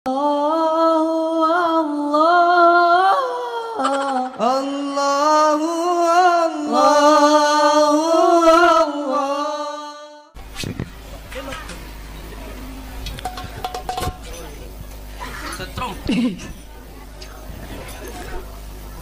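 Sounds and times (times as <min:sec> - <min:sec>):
person singing high devotional song: 0:00.1 - 0:10.4.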